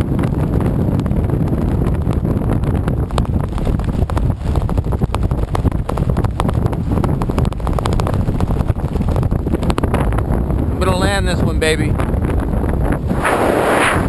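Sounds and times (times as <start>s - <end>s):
wind buffeting a microphone: 0.0s - 14.0s
short crackles: 13.0s - 14.0s.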